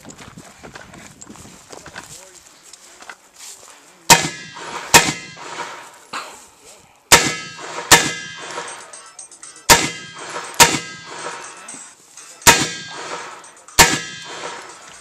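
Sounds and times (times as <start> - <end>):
pistol shots: 4.1 - 5.8, 7.1 - 8.8, 9.7 - 11.5, 12.4 - 14.8
steel targets ringing: 4.1 - 5.8, 7.1 - 15.0.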